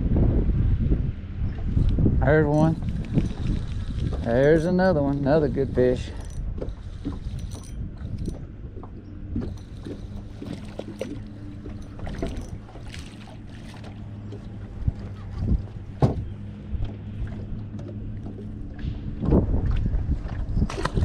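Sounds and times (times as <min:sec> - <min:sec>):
trolling motor hum: 0:00.0 - 0:21.0
fishing reel cranking: 0:05.8 - 0:08.4.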